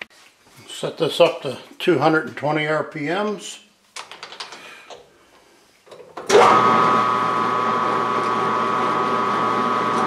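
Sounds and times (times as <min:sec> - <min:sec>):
machine spindle whine and hum: 0:06.3 - 0:10.0.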